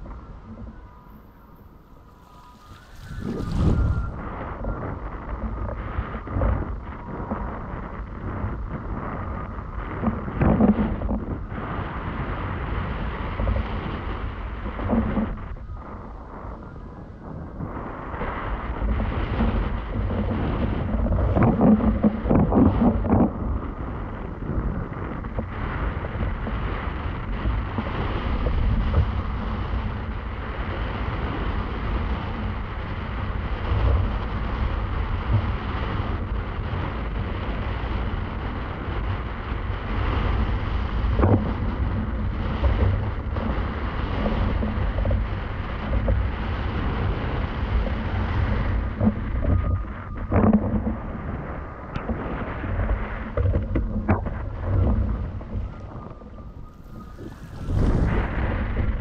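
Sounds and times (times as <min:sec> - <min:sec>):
wind buffeting microphone: 0:00.0 - 0:59.0
water rushing: 0:52.0 - 0:59.0.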